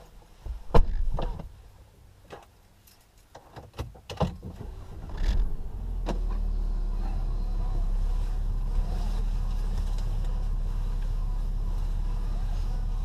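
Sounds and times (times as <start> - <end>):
clicks and knocks in car cabin: 0.5 - 1.6, 3.3 - 5.4
car engine starting and idling: 4.0 - 13.0.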